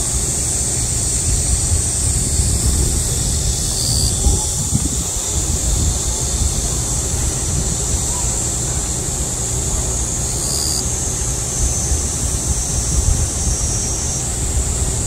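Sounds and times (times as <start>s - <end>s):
cicadas buzzing: 0.0s - 15.0s
wind rumble on microphone: 0.0s - 15.0s.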